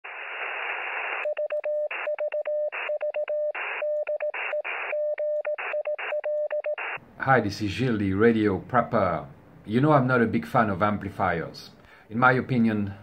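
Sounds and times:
static hiss: 0.0s - 1.2s
morse code tone: 1.2s - 7.0s.

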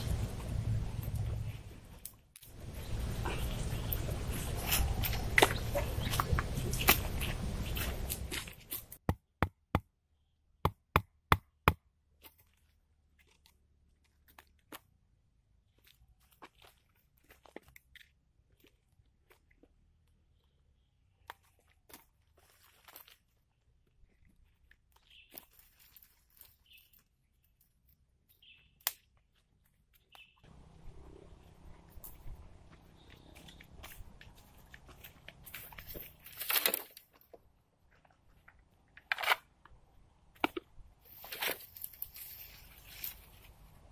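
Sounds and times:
bird chirping: 28.3s - 28.8s, 29.9s - 31.6s, 32.7s - 33.9s.

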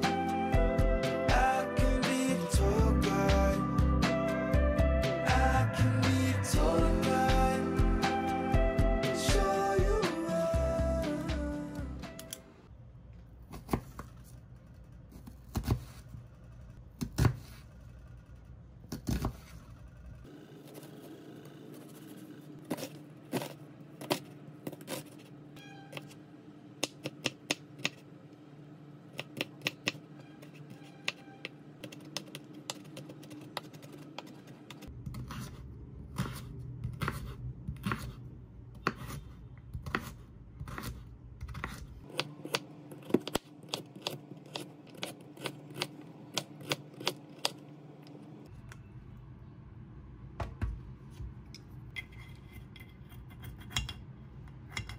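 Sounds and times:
knife chopping on wooden board: 36.2s - 38.2s, 38.8s - 39.2s, 39.8s - 47.6s.

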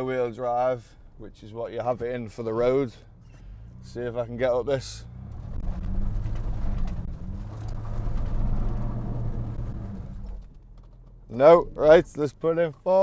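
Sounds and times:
car engine under load: 0.0s - 13.0s.

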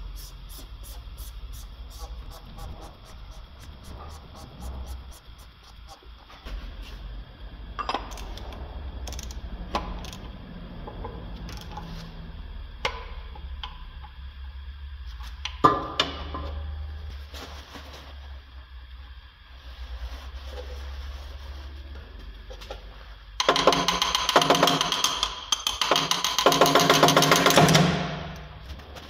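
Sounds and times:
low steady hum: 0.0s - 23.4s
ratchet wrench clicks: 8.1s - 10.3s, 11.5s - 11.9s, 23.4s - 27.5s.

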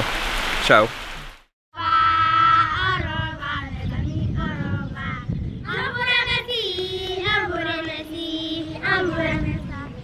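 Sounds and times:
children singing: 5.7s - 10.0s.

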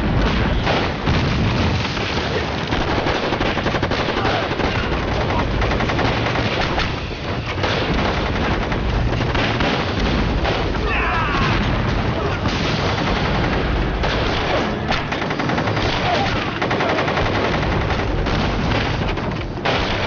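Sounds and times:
rifle shots: 0.0s - 10.8s, 11.5s - 20.0s
explosions: 0.0s - 20.0s
machine-gun bursts: 2.1s - 10.7s, 12.7s - 20.0s.

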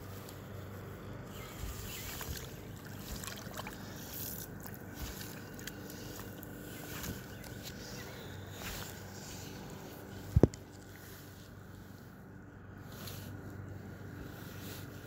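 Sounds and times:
creek water flowing: 2.1s - 6.4s.

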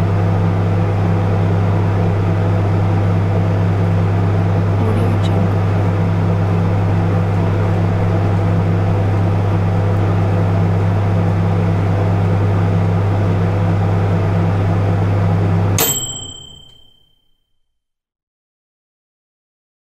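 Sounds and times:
microwave oven humming: 0.0s - 17.0s
microwave click: 15.8s - 17.0s
microwave bell ding: 15.8s - 17.2s.

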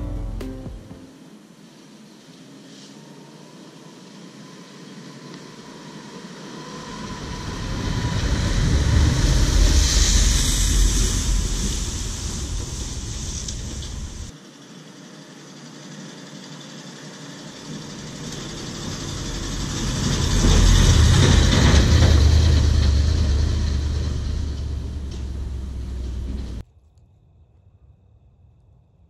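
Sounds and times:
excavator diesel engine running: 6.9s - 14.3s, 17.6s - 26.6s.

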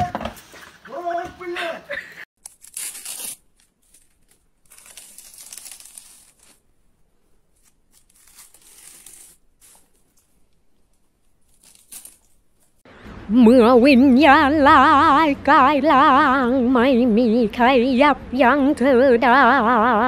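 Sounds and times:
crinkly wrapping rustling: 2.4s - 6.8s, 7.4s - 12.8s.

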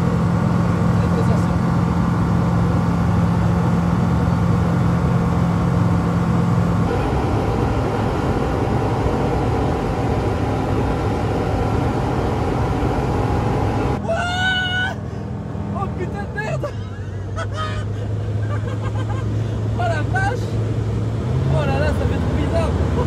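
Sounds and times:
propeller engine droning: 0.0s - 23.0s
person whooping: 14.0s - 15.1s.

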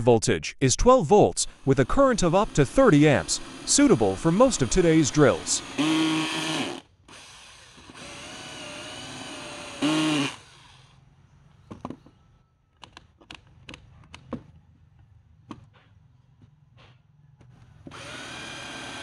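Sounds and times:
drill motor whining: 1.5s - 11.0s, 17.9s - 19.0s.

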